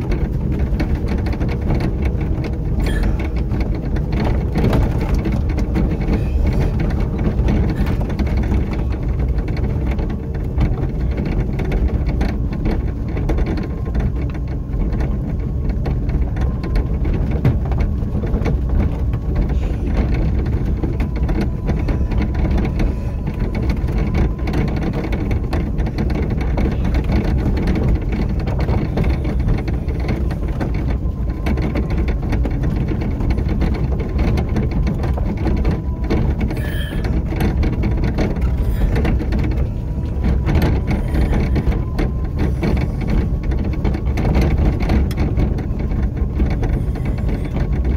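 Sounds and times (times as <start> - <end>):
low rumble: 0.0 - 47.9
tyres crackling on gravel: 14.8 - 47.9.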